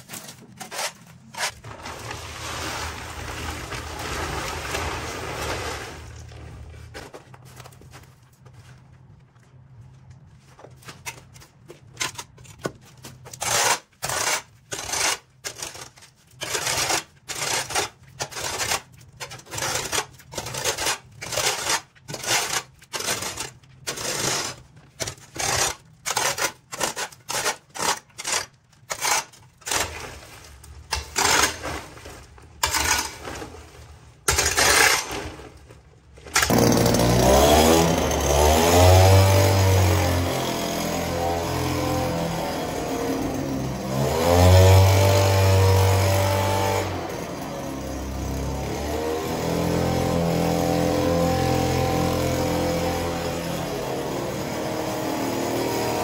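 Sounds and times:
small petrol engine revving: 0:36.4 - 0:56.0.

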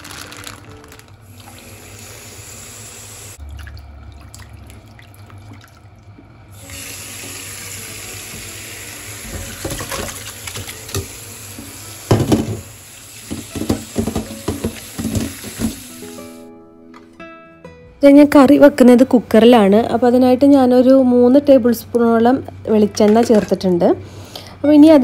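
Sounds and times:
tap running into metal pot: 0:09.2 - 0:11.2, 0:12.1 - 0:12.6, 0:13.2 - 0:16.0
splashes and knocks in colander: 0:09.3 - 0:11.1, 0:13.3 - 0:15.9.

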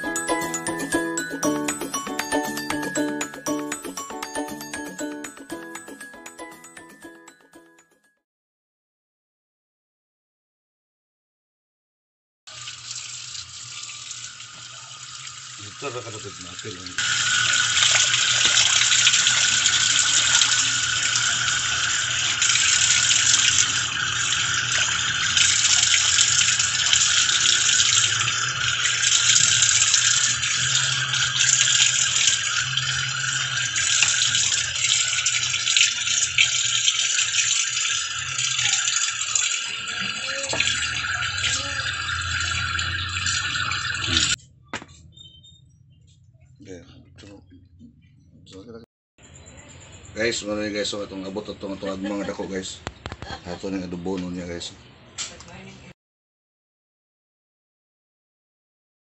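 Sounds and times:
water running from a tap: 0:00.0 - 0:06.3, 0:12.5 - 0:44.4.

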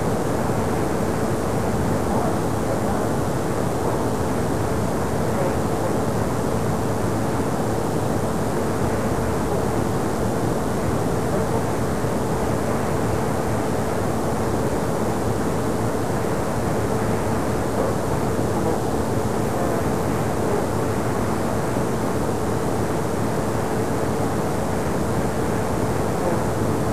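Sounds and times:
faint steady hum: 0:00.0 - 0:26.9
loud hiss and rumble: 0:00.0 - 0:26.9.

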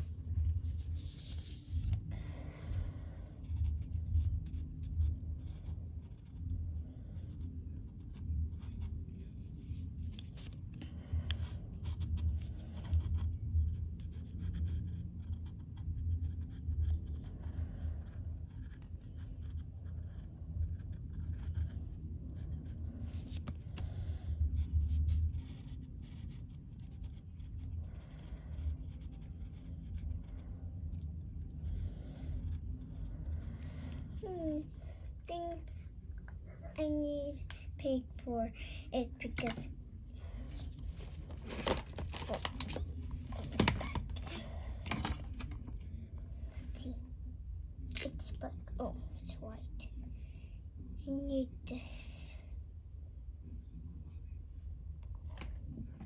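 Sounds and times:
pen scratching on paper: 0:00.3 - 0:31.3.

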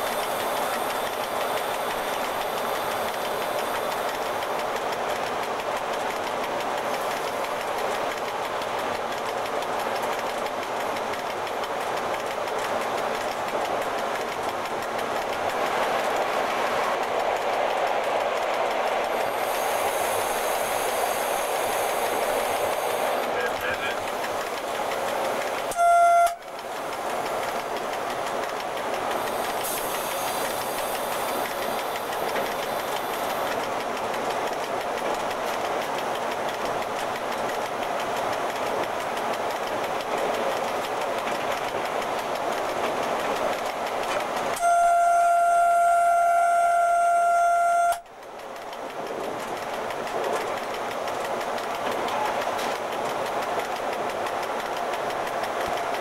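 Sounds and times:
locomotive rolling and traction noise: 0:00.0 - 0:56.0
train horn blast: 0:25.7 - 0:26.4, 0:44.6 - 0:48.0.

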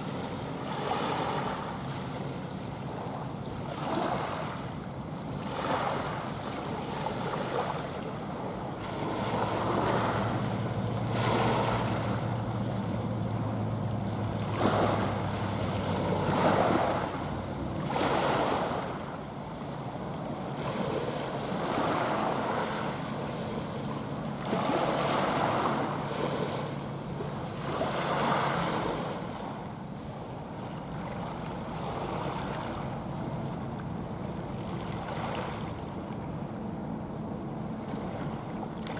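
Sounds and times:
waves washing on shore: 0:00.0 - 0:38.9
low engine drone: 0:08.1 - 0:38.9.

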